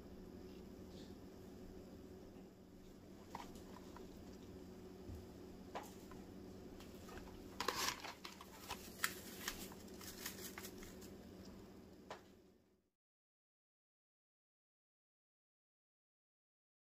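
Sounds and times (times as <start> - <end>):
faint steady hum: 0.0 - 12.9
foil sachet rustling and crinkling: 6.8 - 11.2.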